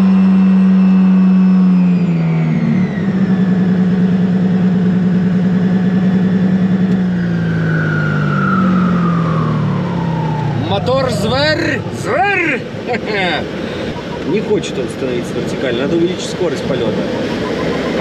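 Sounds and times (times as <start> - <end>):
glider engine and propeller: 7.6 - 18.0.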